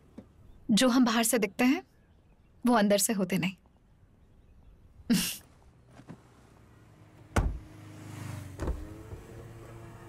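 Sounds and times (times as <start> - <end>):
car door thump: 7.3 - 7.7, 8.6 - 8.9.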